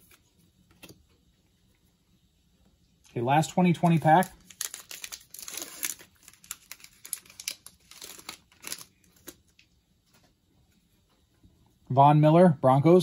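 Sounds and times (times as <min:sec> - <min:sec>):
wrapper tearing and crinkling: 0:04.0 - 0:09.5.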